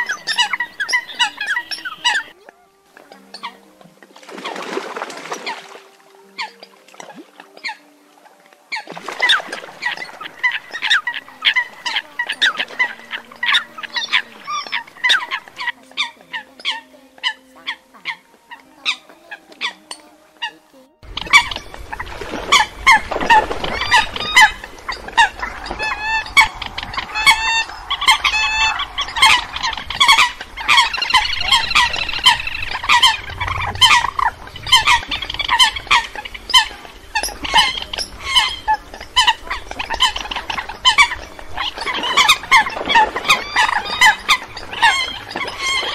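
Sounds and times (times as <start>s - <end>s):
coots calling: 0.0s - 45.9s
steady background hiss: 0.0s - 45.9s.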